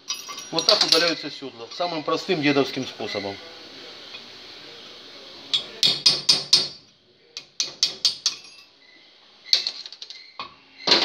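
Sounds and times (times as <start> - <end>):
hammer striking steel punch: 5.6 - 6.8.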